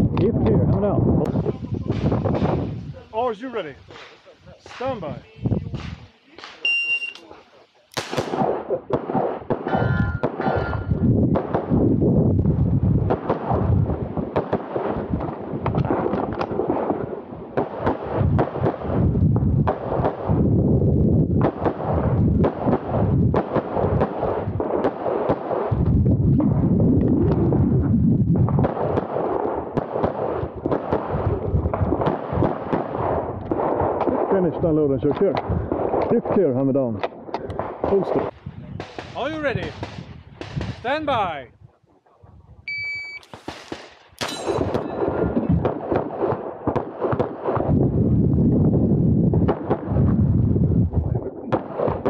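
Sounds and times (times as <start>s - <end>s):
dull low rumbling: 0.0s - 3.1s, 9.8s - 14.3s, 25.8s - 28.7s
rapid pistol shots: 3.9s - 11.8s, 13.0s - 19.0s, 19.6s - 20.4s, 21.4s - 25.8s, 28.5s - 34.5s, 38.8s - 41.0s, 43.2s - 47.7s, 51.5s - 52.0s
shot timer beep: 6.6s - 7.2s, 42.7s - 43.3s
handgun shots: 7.9s - 8.5s, 43.2s - 45.0s.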